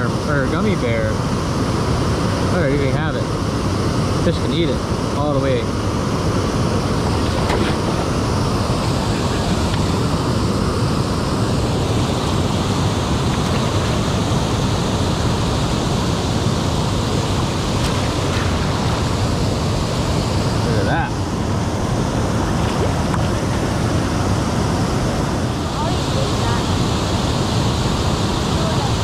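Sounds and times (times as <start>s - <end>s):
river water rushing over dam: 0.0s - 29.0s.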